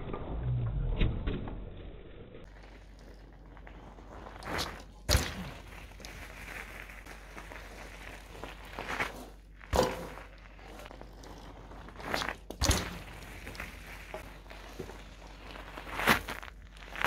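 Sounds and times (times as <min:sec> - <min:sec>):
bike tyres crunching gravel: 0:02.4 - 0:17.0
bike landing heavy thud: 0:09.7 - 0:10.3, 0:12.5 - 0:13.7.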